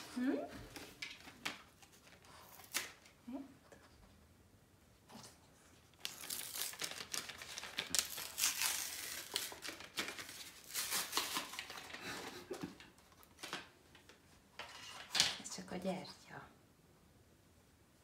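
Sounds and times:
packaging crinkling and rustling: 0:05.9 - 0:14.2.

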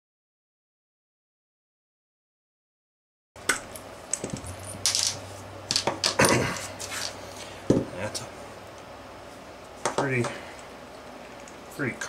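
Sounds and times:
faint steady hum: 0:03.4 - 0:12.0.

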